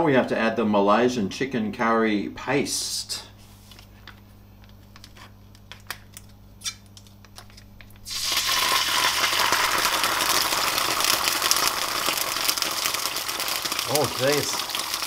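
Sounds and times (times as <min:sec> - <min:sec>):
foil sachet crinkling: 0:07.4 - 0:15.0
paste sizzling in hot oil: 0:08.0 - 0:15.0.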